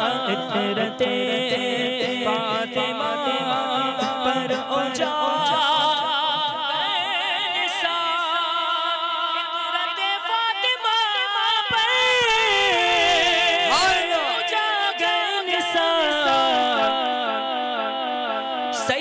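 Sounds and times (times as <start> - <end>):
man singing into a microphone: 0.0 - 19.0.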